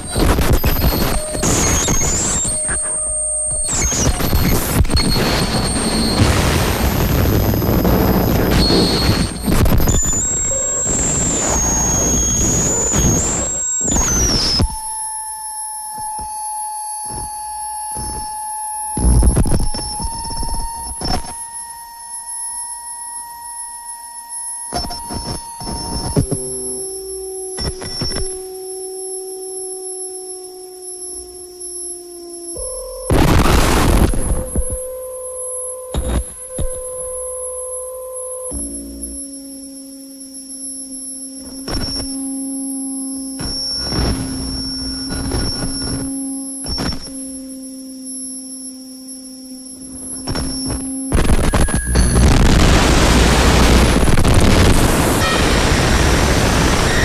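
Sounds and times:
bursts of harsh noise: 0.0s - 21.0s, 32.2s - 47.6s, 49.7s - 57.0s
low synth tone: 0.0s - 57.0s
sine-like synth tones: 0.0s - 57.0s.

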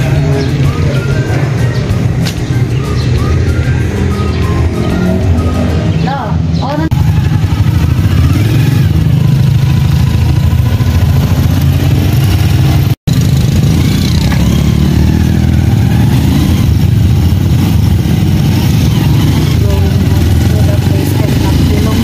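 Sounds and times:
motorcycle engine droning: 0.0s - 22.0s.

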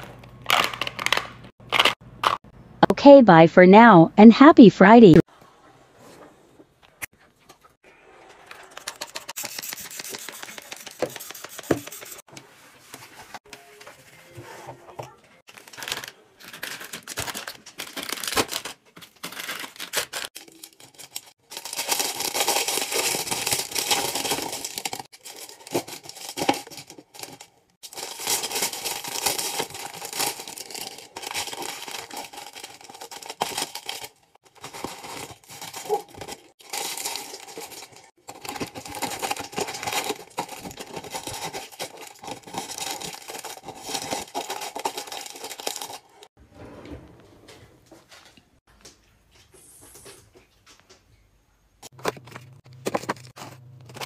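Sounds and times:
plastic wrappers crinkling: 15.5s - 46.3s.

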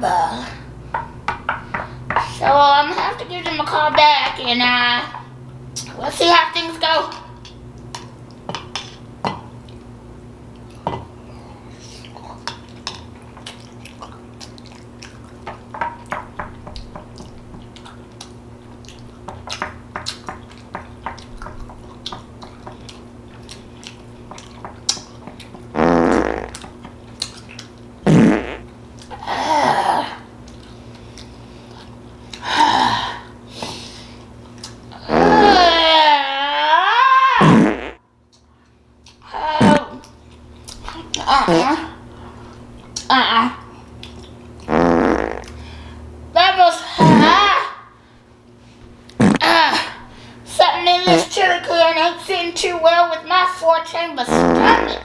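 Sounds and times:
mouth sounds of eating: 10.6s - 15.4s.

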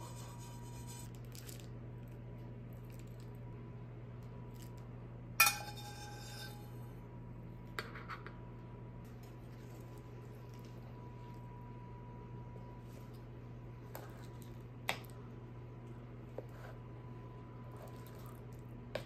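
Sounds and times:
steady low hum: 0.0s - 19.0s
metal spoon clinking on pan: 5.4s - 6.7s.

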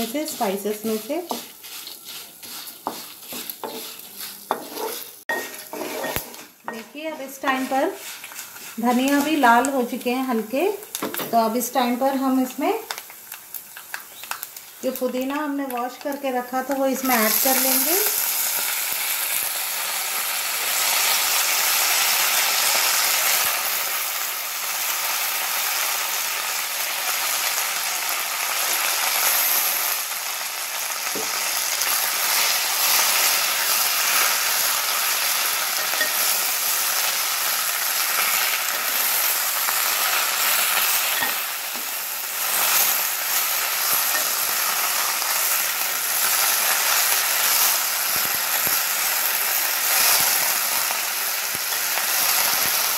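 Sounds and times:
spatula stirring in pan: 0.0s - 9.7s, 31.2s - 37.0s
leaves sizzling in hot oil: 0.0s - 52.9s.

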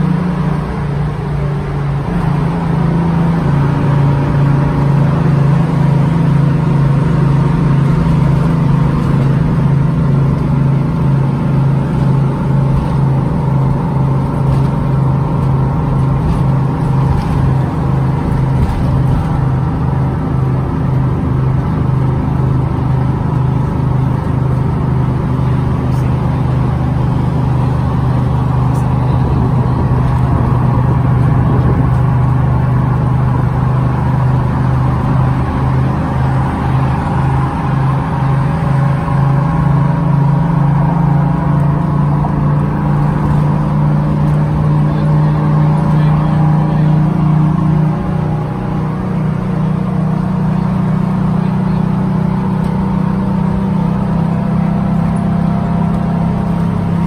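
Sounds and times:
bus diesel engine running: 0.0s - 57.0s
road noise: 0.0s - 57.0s.

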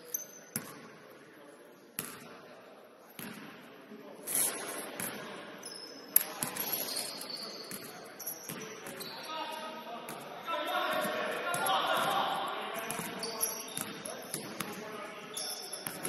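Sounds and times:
sneakers squeaking: 0.0s - 0.8s, 4.3s - 12.2s, 12.8s - 16.0s
basketball bouncing on court: 3.2s - 3.5s, 7.7s - 9.1s, 12.8s - 14.8s.

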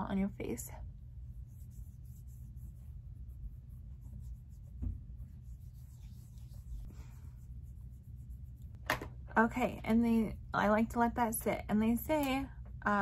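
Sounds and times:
low steady hum: 0.0s - 13.0s
fingertips rubbing on skin: 1.2s - 8.8s.

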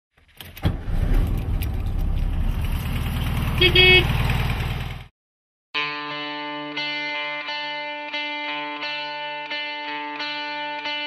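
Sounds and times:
car engine starting and idling: 0.2s - 5.1s.

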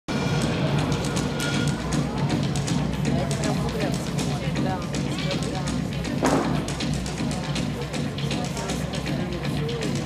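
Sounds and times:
upbeat music over loudspeakers: 0.1s - 10.0s.

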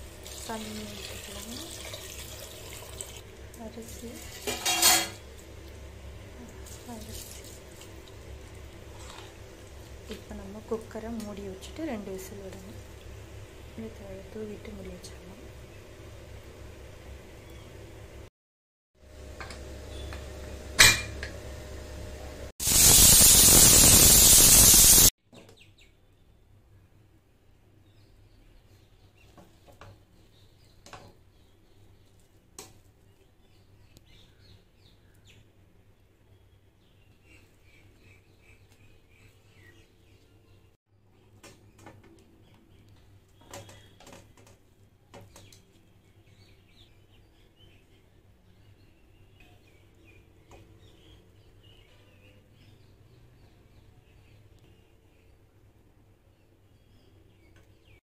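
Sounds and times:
spoon scraping a steel plate: 4.4s - 5.2s
pressure cooker steam hiss: 22.6s - 25.1s.

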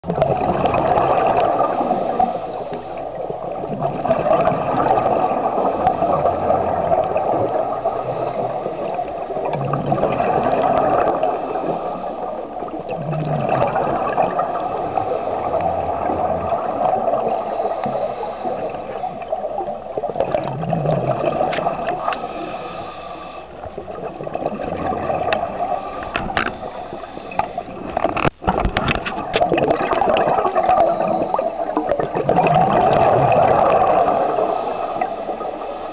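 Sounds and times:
diver breathing through regulator: 17.2s - 19.4s, 21.7s - 23.9s, 25.5s - 28.1s, 30.7s - 31.7s, 34.1s - 35.9s
sharp clicks and knocks: 26.1s - 26.6s, 27.4s - 30.0s.

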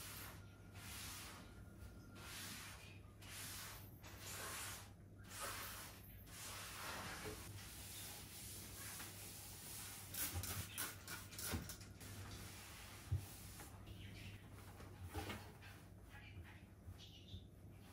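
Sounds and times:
broom swishing on floor: 0.0s - 10.8s, 12.0s - 13.8s.

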